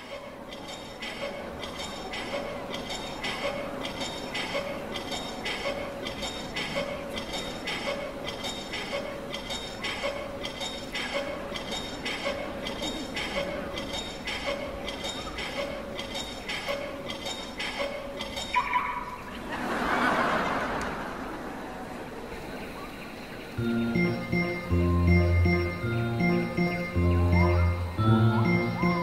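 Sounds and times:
metallic clinking ticks: 0.0 - 18.6.

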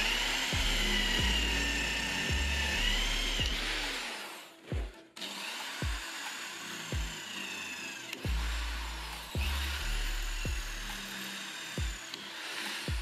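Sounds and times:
music with bass-drum beat: 0.0 - 4.0, 5.8 - 6.1, 6.9 - 7.2, 8.2 - 11.1, 11.8 - 12.0
electric drill cutting steel pipe: 0.0 - 13.0.

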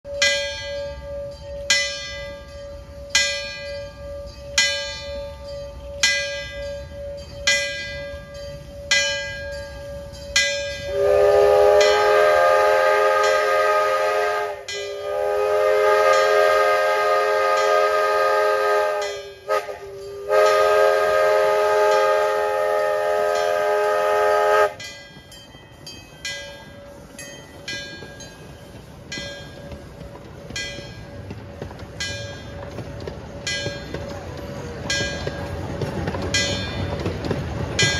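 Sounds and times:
steam locomotive bell ringing: 0.0 - 37.9
steam whistle chord blasts: 10.9 - 24.8.

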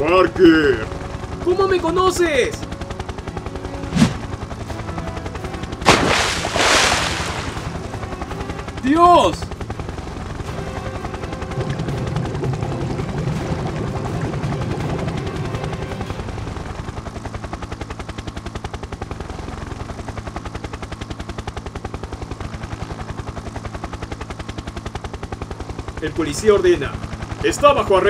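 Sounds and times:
rapid chopping pulse: 3.8 - 4.5, 5.8 - 7.8.

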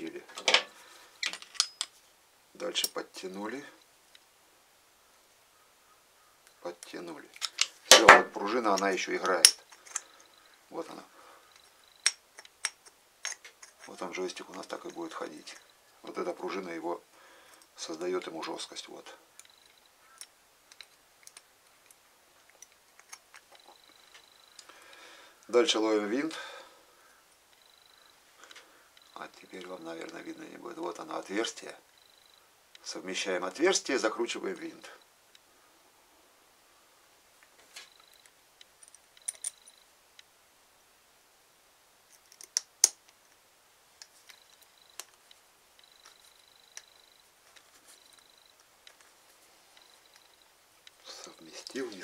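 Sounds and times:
small metal clicks: 0.4 - 2.0, 6.4 - 8.1, 8.7 - 10.4, 11.5 - 15.7, 19.4 - 25.0, 37.8 - 39.8, 42.1 - 43.4, 44.0 - 49.1.

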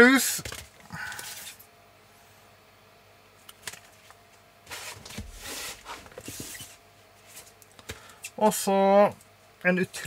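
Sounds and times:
sleeves rustling and sliding: 4.7 - 7.6.

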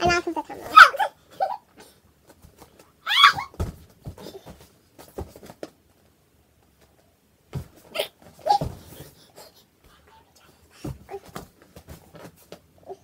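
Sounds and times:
knocks and rustles on floor: 2.3 - 5.8, 6.8 - 9.2, 10.8 - 12.7.

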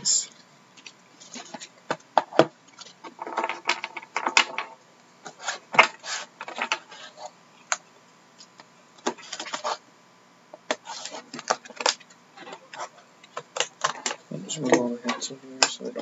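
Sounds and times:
tool scratching plastic wrap: 10.7 - 13.0.

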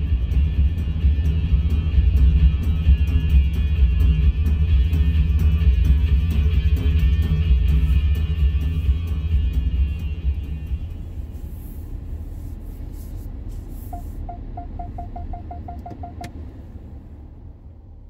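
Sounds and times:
background music: 0.0 - 12.3, 14.0 - 16.3
car rumble from inside cabin: 0.0 - 18.0
parking sensor beeping: 13.8 - 16.4.

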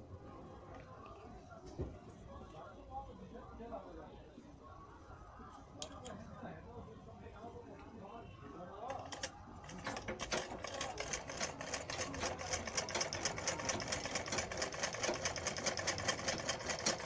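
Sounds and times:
sewing machine clattering: 8.9 - 17.0.

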